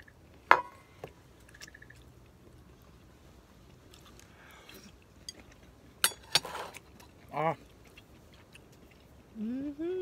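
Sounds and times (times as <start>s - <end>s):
quiet chewing: 1.4s - 5.8s, 6.6s - 9.6s.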